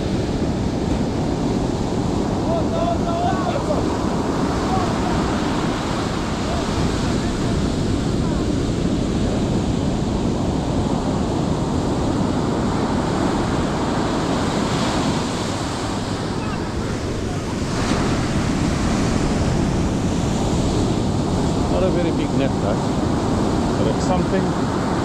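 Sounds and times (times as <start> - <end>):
surf washing onto beach: 0.0 - 25.0
wind buffeting microphone: 0.0 - 25.0.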